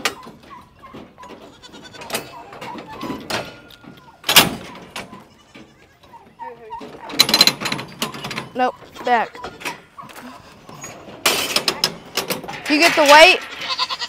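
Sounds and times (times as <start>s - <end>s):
goats bleating: 1.4s - 3.1s, 5.1s - 6.4s, 8.8s - 10.4s, 13.4s - 14.0s.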